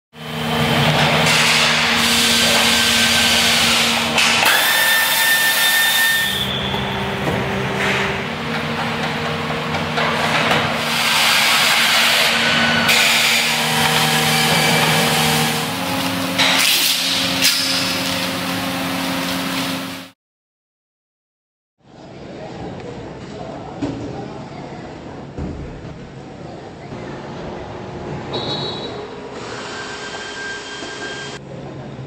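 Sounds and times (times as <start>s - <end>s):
steady high whine: 0.2s - 10.9s
power tool running: 0.2s - 20.1s
steady machine hum: 0.2s - 20.1s.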